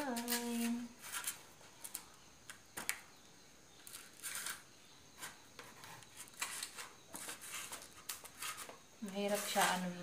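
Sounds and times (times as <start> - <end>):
knife scraping strokes: 5.2 - 10.0.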